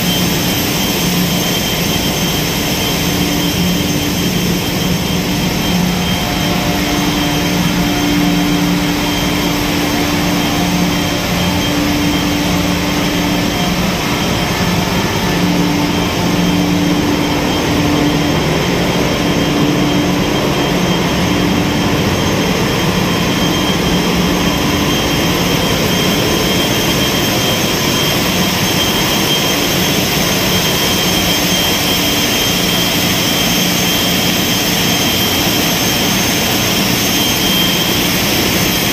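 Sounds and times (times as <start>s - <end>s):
low hum: 0.0s - 27.3s
engine room machinery running: 0.0s - 38.9s
thin high whine: 0.0s - 38.9s.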